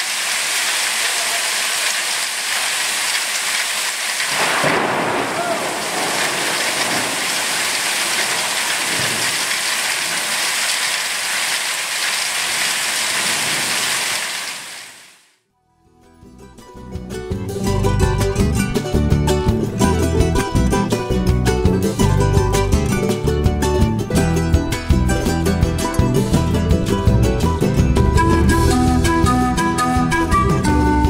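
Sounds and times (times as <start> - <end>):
heavy rain on pavement: 0.0 - 15.2
thunder rumble: 4.3 - 10.4.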